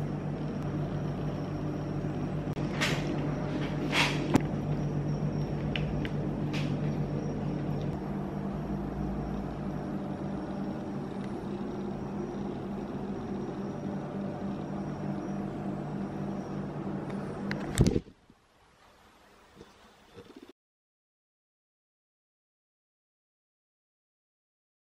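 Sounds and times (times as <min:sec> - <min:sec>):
faint high whine: 0:00.0 - 0:18.0
kitchen appliance hum: 0:00.0 - 0:18.0.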